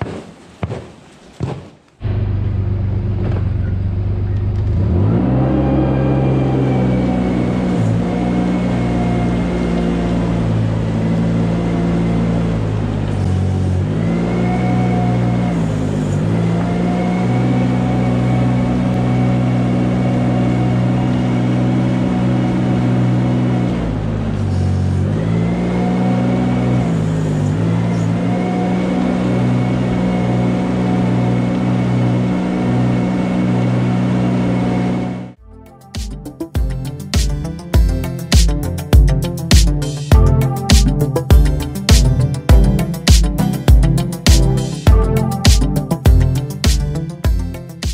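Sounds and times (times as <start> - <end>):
manure scraper engine running: 2.0 - 35.4.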